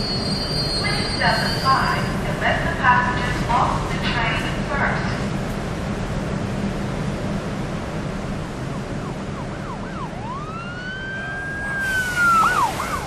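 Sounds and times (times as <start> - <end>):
traffic rumble: 0.0 - 13.0
emergency vehicle siren: 8.0 - 13.0.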